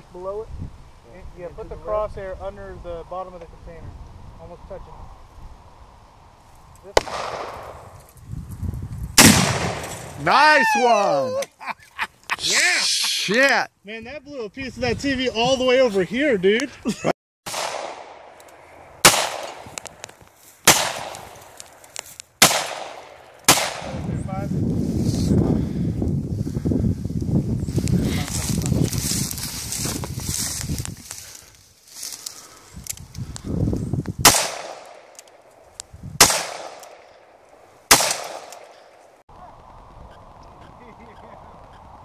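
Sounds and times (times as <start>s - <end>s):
handgun shots with echo: 7.0s - 7.7s, 19.0s - 19.6s, 22.4s - 24.0s, 34.2s - 35.0s, 36.2s - 37.0s, 37.9s - 38.7s.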